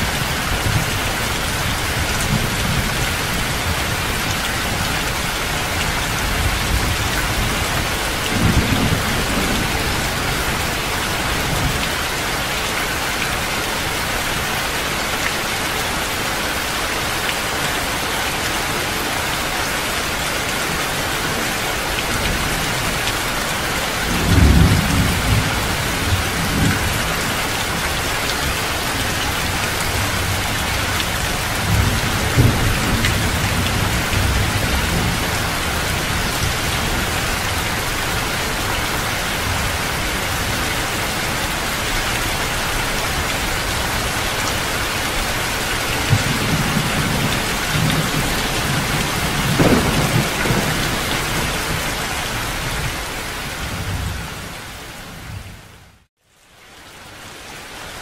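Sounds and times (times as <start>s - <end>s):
heavy rain: 0.0s - 58.0s
thunder rolling: 46.0s - 52.7s.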